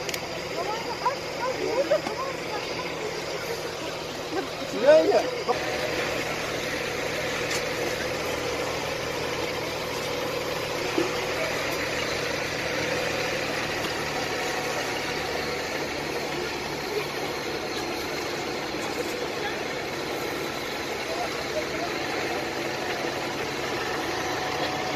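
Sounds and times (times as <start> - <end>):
vehicle engine idling: 0.0 - 24.9.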